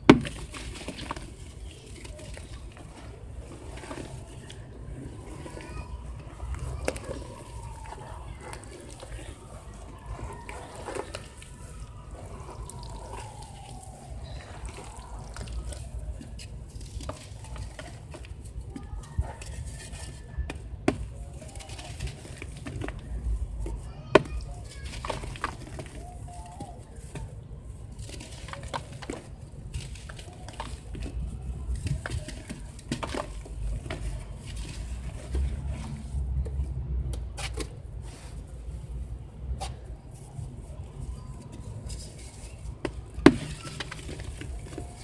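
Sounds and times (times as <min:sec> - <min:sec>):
water sloshing: 0:00.0 - 0:18.9
hands squishing wet sand: 0:00.0 - 0:45.0.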